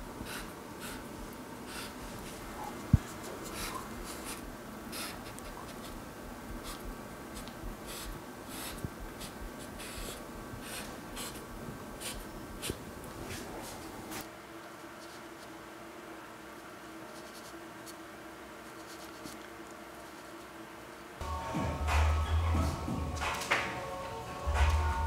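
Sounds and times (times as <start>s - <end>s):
marker scratching on canvas: 0.2s - 1.1s, 1.7s - 2.0s, 2.9s - 6.0s, 6.6s - 12.8s, 17.1s - 18.0s, 18.6s - 19.4s.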